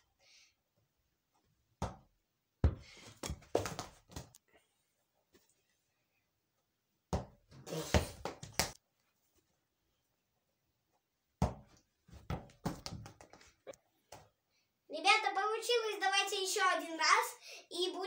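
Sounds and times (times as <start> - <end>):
ball thumps: 1.8 - 4.3, 7.1 - 7.4, 11.4 - 13.4.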